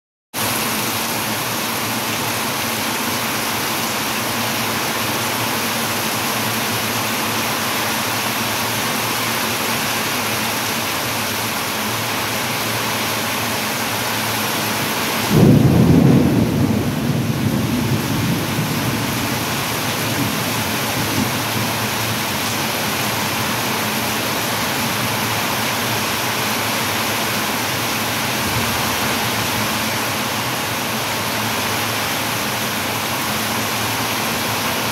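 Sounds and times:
heavy rain pouring: 0:00.4 - 0:34.9
thunderclap rumbling: 0:15.2 - 0:22.5, 0:28.3 - 0:30.0.

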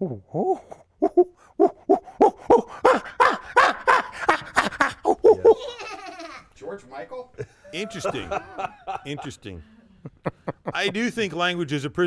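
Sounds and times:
man vocalizing hoot-like syllables: 0:00.0 - 0:04.0, 0:05.0 - 0:05.6.

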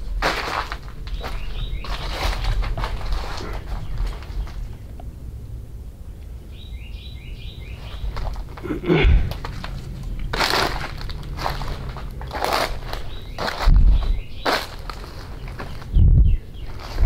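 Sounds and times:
loud crunch: 0:00.0 - 0:04.9, 0:07.8 - 0:16.0, 0:16.6 - 0:17.0
footsteps on forest floor: 0:00.2 - 0:04.8, 0:07.8 - 0:16.0, 0:16.6 - 0:17.0
bird chirping: 0:01.0 - 0:05.4, 0:06.0 - 0:17.0.

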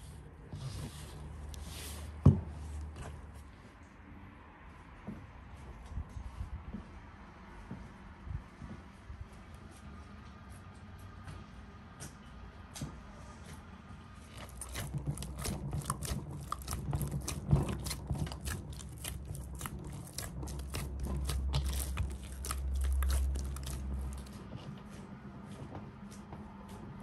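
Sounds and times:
crisp clicks and crunches: 0:14.3 - 0:24.4.

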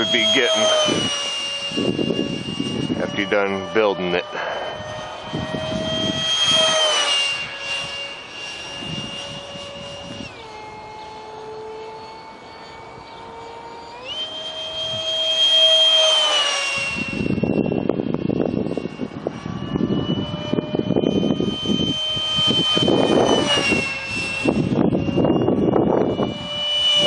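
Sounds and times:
electric ducted fan whine: 0:00.0 - 0:27.0
rough low rushing noise: 0:04.3 - 0:08.1.

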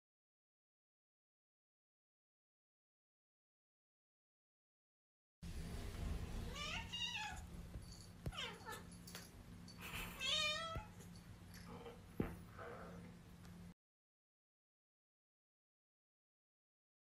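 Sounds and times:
steady low hum: 0:05.4 - 0:13.8.

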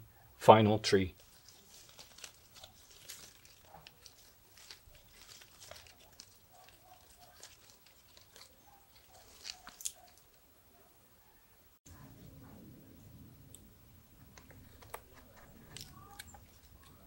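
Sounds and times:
leaves rustling: 0:00.9 - 0:10.8, 0:13.3 - 0:17.0
small clicks and crackles of stems: 0:01.2 - 0:10.4, 0:14.2 - 0:17.0.

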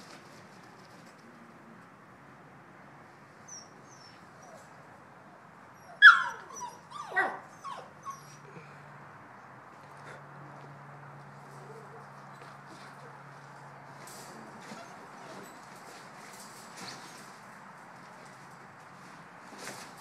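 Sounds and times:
puppies yelping and whining: 0:03.5 - 0:04.7, 0:05.8 - 0:08.6, 0:14.6 - 0:15.7
faint squeaks: 0:14.3 - 0:17.4.

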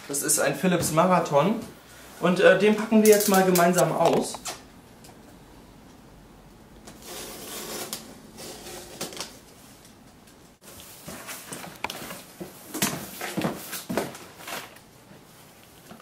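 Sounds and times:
box cutter slicing packing tape: 0:07.0 - 0:09.3
cardboard flaps rustling: 0:10.8 - 0:14.8.

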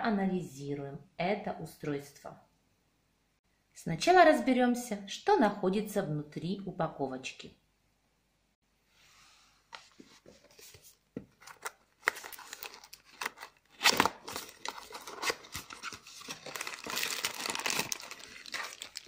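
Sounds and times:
cardboard box being opened: 0:10.2 - 0:19.0
packaging rustling and tearing: 0:10.6 - 0:19.0.

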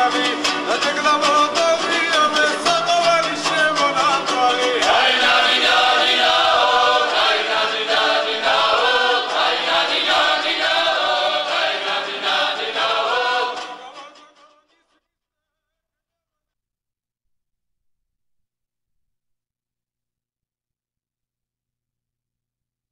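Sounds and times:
choir singing: 0:04.5 - 0:14.2.

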